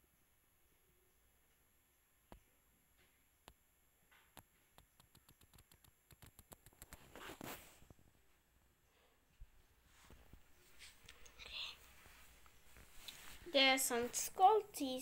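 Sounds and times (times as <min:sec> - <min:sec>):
faint small clicks: 0:04.3 - 0:07.1.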